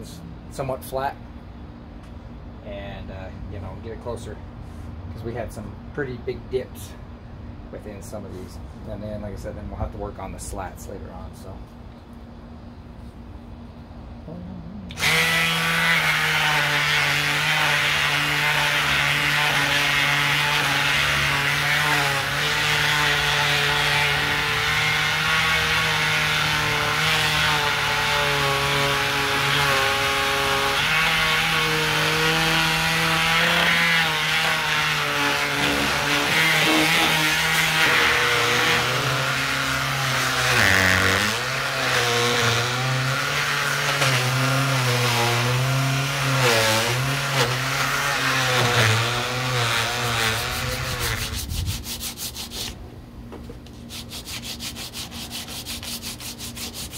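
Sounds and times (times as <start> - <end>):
palm sander running: 14.3 - 52.8, 53.6 - 56.9.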